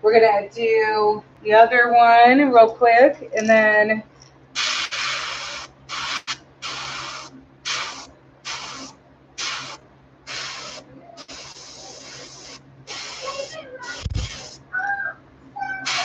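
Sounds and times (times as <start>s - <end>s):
airbrush spraying hissing bursts: 4.6s - 14.6s.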